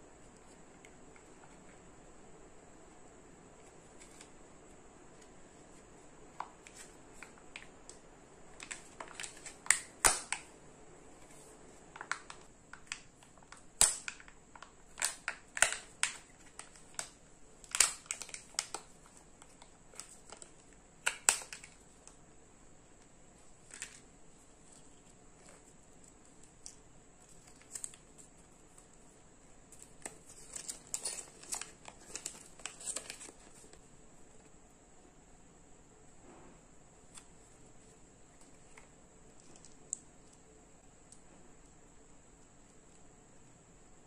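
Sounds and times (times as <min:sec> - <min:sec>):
plastic packaging clicks and crackles: 0:03.6 - 0:04.4, 0:05.1 - 0:10.6, 0:11.2 - 0:22.2, 0:23.0 - 0:29.1, 0:29.7 - 0:33.8, 0:37.1 - 0:40.4.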